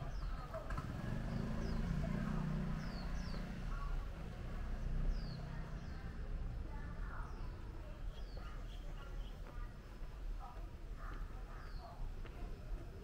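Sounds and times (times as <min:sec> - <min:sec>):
small bird chirping: 0:00.0 - 0:04.2, 0:04.9 - 0:06.2, 0:07.1 - 0:09.7
vehicle engine humming: 0:00.0 - 0:07.3.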